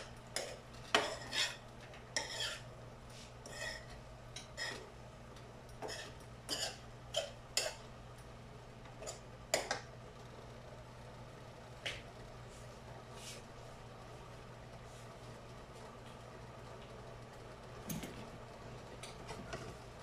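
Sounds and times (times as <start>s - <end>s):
metal spoon scraping frying pan: 0.4s - 2.7s, 3.4s - 4.8s, 5.8s - 7.8s.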